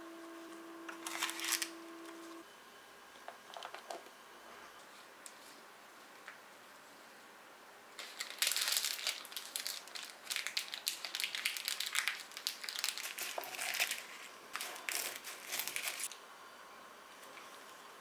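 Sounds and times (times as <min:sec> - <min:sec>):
baking paper crinkling: 0:01.0 - 0:01.7, 0:08.0 - 0:16.2.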